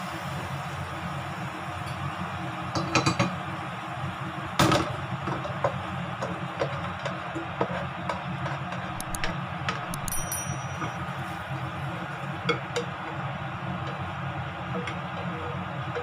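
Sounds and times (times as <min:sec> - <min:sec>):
food sizzling: 0:00.0 - 0:16.0
ceramic dish clinking: 0:09.9 - 0:11.0.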